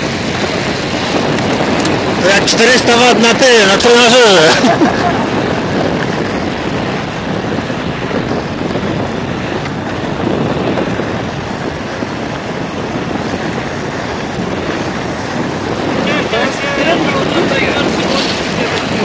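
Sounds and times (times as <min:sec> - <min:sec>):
wheels rolling on asphalt: 0:00.0 - 0:19.0
wind rushing over microphone: 0:00.0 - 0:19.0.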